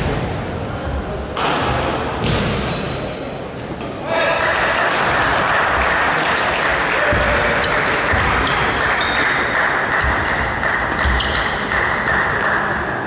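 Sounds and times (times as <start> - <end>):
rackets hitting shuttlecock: 7.1 - 12.4
shoes squeaking on sports floor: 8.1 - 9.4, 11.0 - 11.6.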